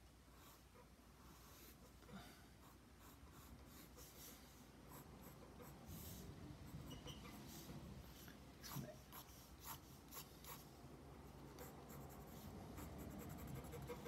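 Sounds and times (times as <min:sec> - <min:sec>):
pencil scratching on paper: 0:02.6 - 0:07.7, 0:08.7 - 0:10.7, 0:11.5 - 0:14.0.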